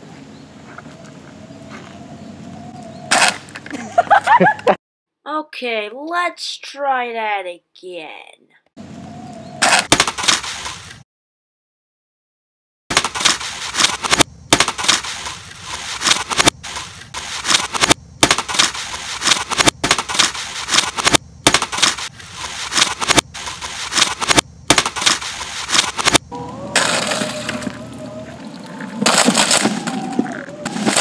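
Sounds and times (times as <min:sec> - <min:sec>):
skateboard rolling on asphalt: 0:26.3 - 0:31.0
plastic and glass crunching: 0:28.4 - 0:31.0.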